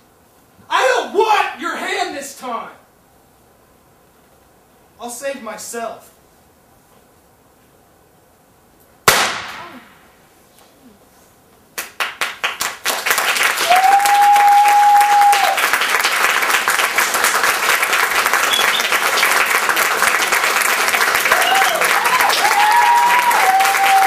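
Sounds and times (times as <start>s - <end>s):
gunshot echo: 9.0s - 10.2s
audience clapping: 11.8s - 24.0s
long whistle: 18.4s - 19.0s, 21.3s - 24.0s.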